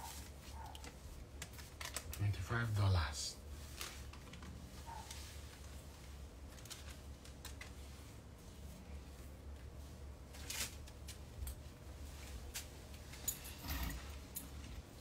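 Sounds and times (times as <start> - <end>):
clothes rustling: 0.0 - 15.0
hangers clicking: 12.5 - 14.7.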